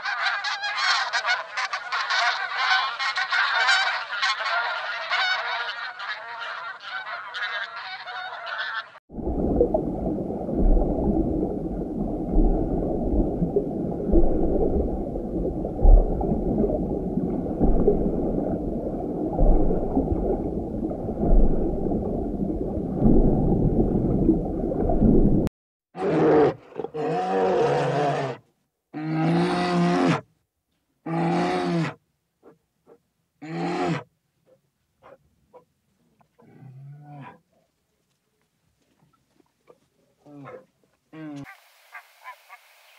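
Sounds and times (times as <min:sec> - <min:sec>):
honking waterfowl calls: 0:00.0 - 0:09.0, 0:41.4 - 0:42.8
low underwater rumble: 0:09.1 - 0:25.5.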